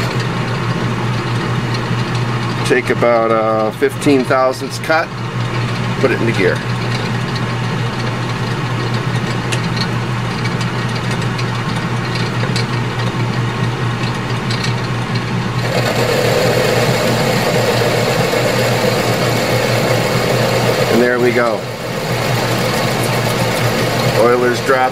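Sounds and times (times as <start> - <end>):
metal lathe motor hum: 13.2 - 24.9.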